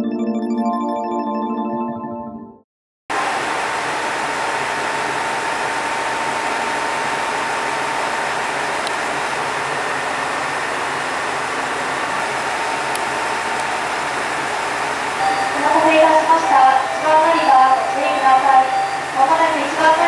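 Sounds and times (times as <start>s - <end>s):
thin constant whine: 3.3s - 20.0s.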